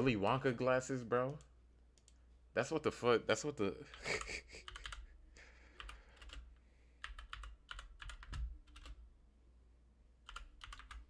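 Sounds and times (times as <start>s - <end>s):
computer keyboard typing: 3.9s - 5.1s, 5.7s - 9.0s, 10.2s - 11.0s.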